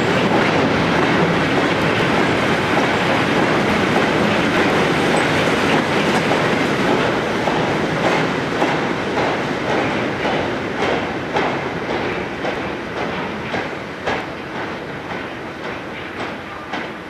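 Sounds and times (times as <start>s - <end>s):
train wagons rumbling past: 0.0s - 17.0s.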